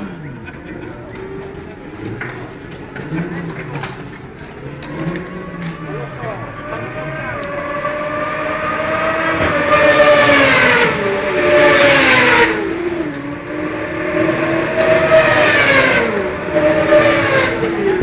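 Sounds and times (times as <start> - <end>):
motorcycle engines revving past: 3.0 - 18.0.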